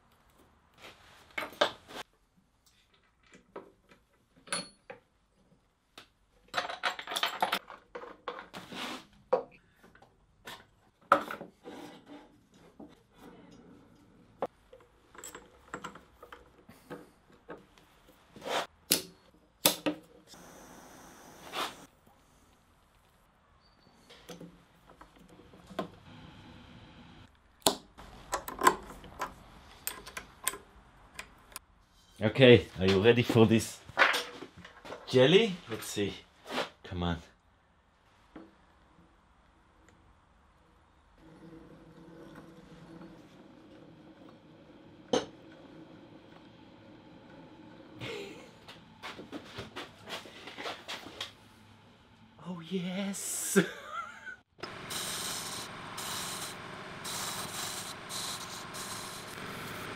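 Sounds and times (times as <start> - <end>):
metal parts clinking and scraping: 6.5 - 8.4.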